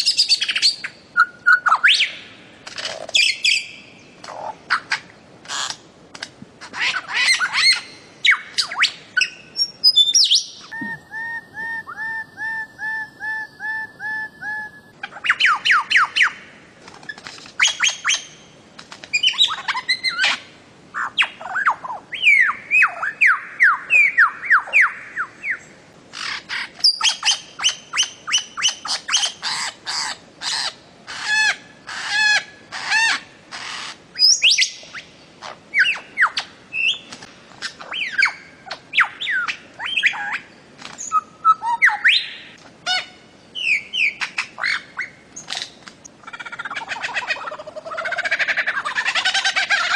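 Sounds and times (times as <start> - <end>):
bird calling sharp notes: 6.7 - 16.4.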